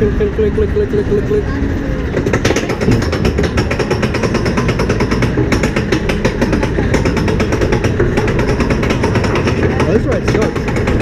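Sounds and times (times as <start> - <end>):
ride car clattering: 0.0 - 11.0.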